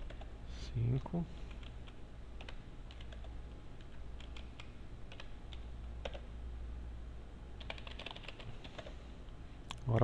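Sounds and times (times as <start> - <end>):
keyboard typing: 0.0 - 0.3, 1.5 - 6.3, 7.6 - 9.0
steady low hum: 0.0 - 10.0.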